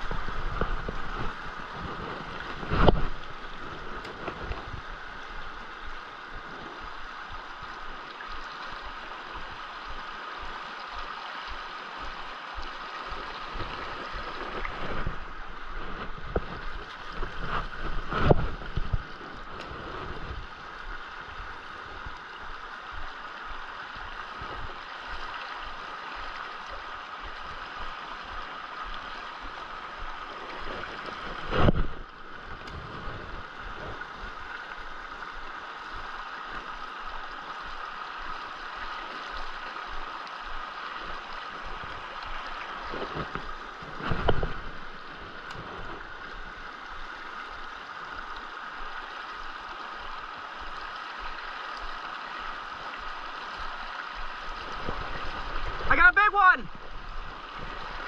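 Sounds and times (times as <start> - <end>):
creek water rushing over rocks: 0.0 - 58.0.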